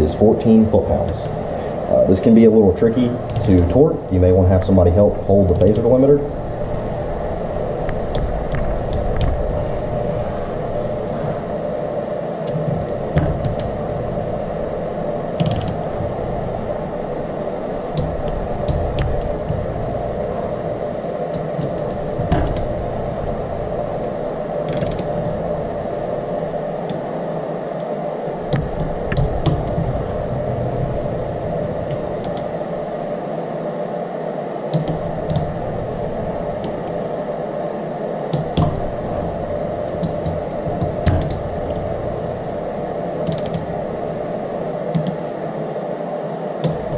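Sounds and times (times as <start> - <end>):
steady background hum: 0.0 - 46.9
handling noise: 5.1 - 33.1.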